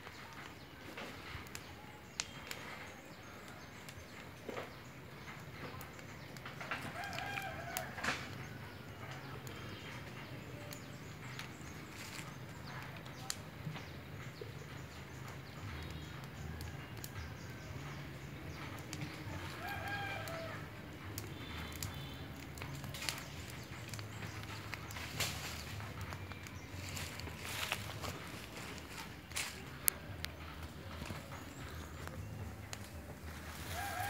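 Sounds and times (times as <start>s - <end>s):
faint rooster crowing: 6.8s - 8.4s, 19.3s - 20.8s, 33.3s - 34.0s.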